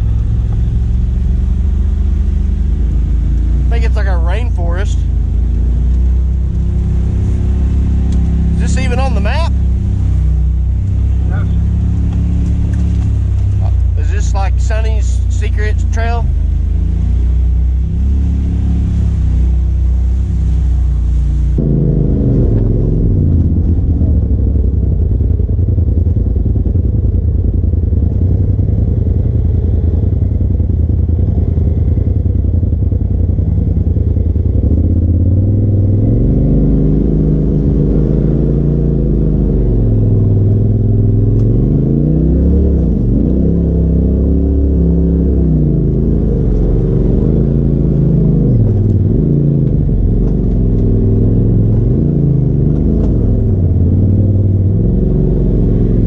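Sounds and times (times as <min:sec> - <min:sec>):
off-road vehicle engine revving: 0:00.0 - 0:56.0.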